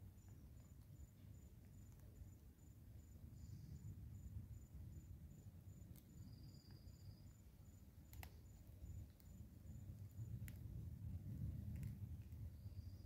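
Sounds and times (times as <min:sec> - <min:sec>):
insect chirping: 0:00.0 - 0:10.5, 0:12.4 - 0:13.0
faint clicks: 0:08.0 - 0:10.7, 0:11.4 - 0:12.5.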